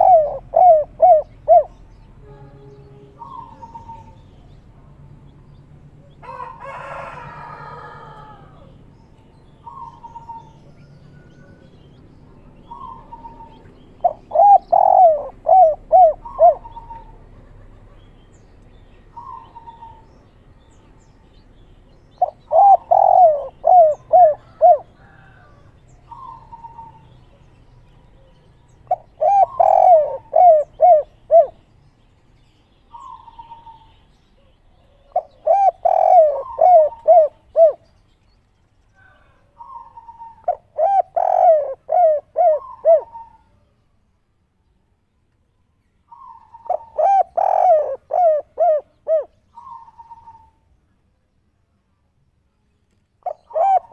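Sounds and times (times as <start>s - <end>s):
dove cooing: 0.0s - 4.4s, 9.6s - 11.9s, 12.6s - 18.0s, 19.1s - 20.1s, 22.2s - 27.1s, 28.1s - 31.6s, 32.9s - 37.9s, 39.0s - 43.6s, 46.1s - 50.6s, 53.2s - 53.9s.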